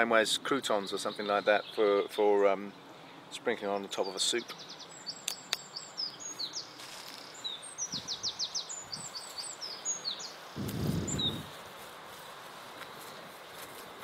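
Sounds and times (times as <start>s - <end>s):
songbird singing: 0.0s - 11.8s
low rustle of handling: 10.6s - 14.0s.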